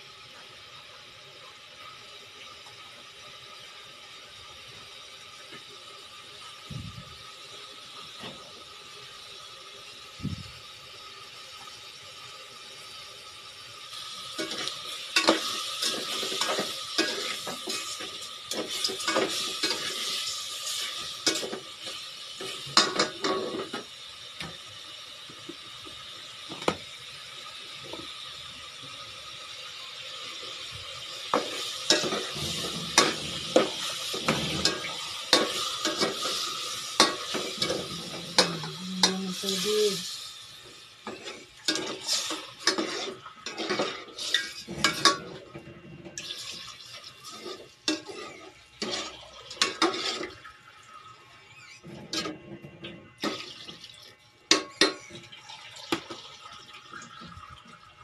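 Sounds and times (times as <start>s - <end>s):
meat sizzling in a pot: 0.0s - 58.0s
metal ladle scraping a pot: 41.1s - 45.4s, 47.3s - 50.4s.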